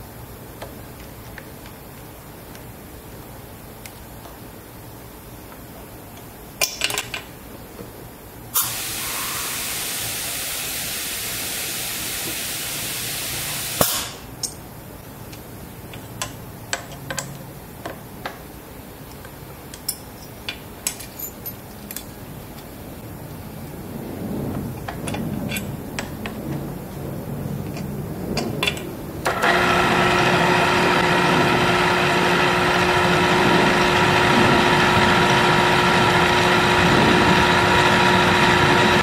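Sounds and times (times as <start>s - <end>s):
metal parts clinking: 19.8s - 22.1s.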